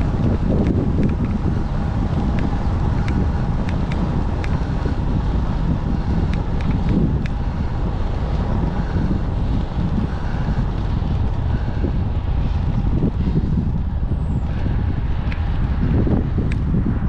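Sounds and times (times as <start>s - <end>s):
small clicks: 0.0s - 1.4s, 2.3s - 4.6s, 6.3s - 7.4s
low rumble: 0.0s - 17.0s
wind buffeting microphone: 0.0s - 17.0s.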